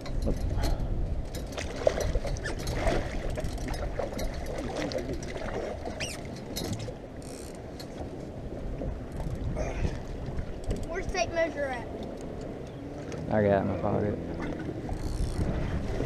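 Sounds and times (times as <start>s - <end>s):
fishing gear clicks and knocks: 0.0s - 8.1s
water splashing at boat side: 0.0s - 16.0s.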